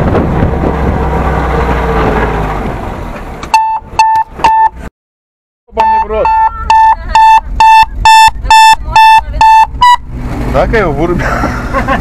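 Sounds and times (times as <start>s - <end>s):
vehicle engine on rough track: 0.0s - 4.9s, 5.7s - 12.0s
loud electronic beeps: 3.6s - 4.8s, 5.8s - 10.1s.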